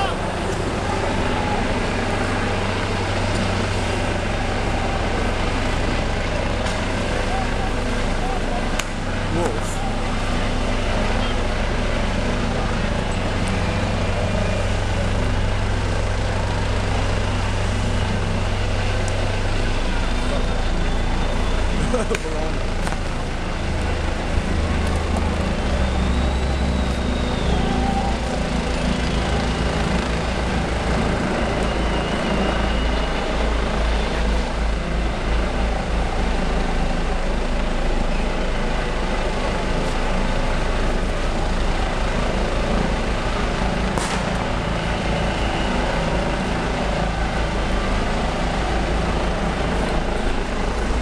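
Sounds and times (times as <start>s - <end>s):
low engine drone: 0.0s - 51.0s
sharp crack: 43.9s - 44.6s.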